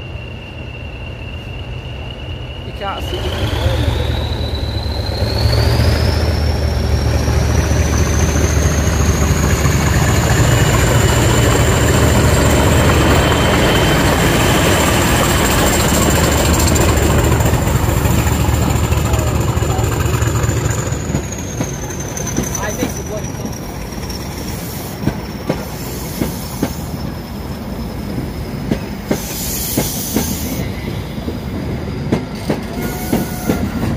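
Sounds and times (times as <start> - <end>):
turbocharger whistle: 0.0 - 6.7
locomotive engine throbbing: 0.0 - 33.9.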